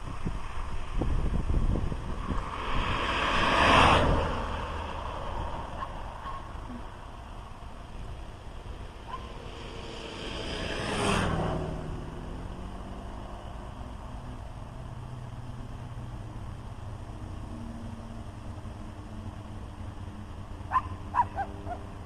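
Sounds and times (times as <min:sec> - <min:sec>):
car passing by: 0:00.8 - 0:07.7, 0:08.6 - 0:16.4
low steady hum: 0:04.6 - 0:22.0.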